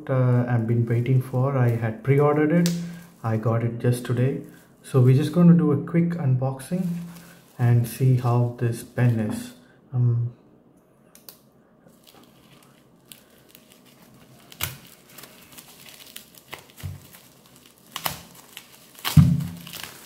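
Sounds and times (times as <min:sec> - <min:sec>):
bubble wrap crinkling: 0:00.5 - 0:05.3, 0:06.7 - 0:09.3, 0:11.9 - 0:20.0
tape being slit and torn: 0:17.8 - 0:20.0.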